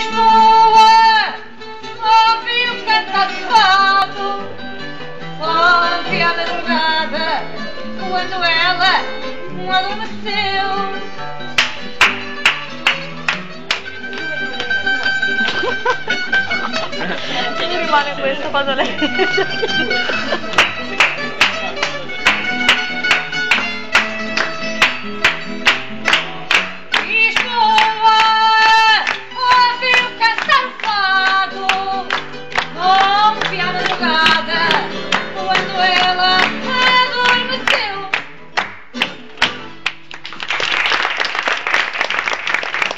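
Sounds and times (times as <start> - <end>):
woman singing: 0.0 - 4.6, 5.3 - 11.1, 26.9 - 38.3
plucked guitar: 0.0 - 40.4
audience applause: 12.0 - 17.9, 18.9 - 26.7, 39.8 - 42.9.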